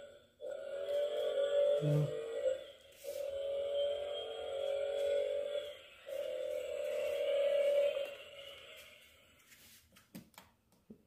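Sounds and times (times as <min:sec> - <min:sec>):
tinny electronic toy tones: 0:00.5 - 0:09.1.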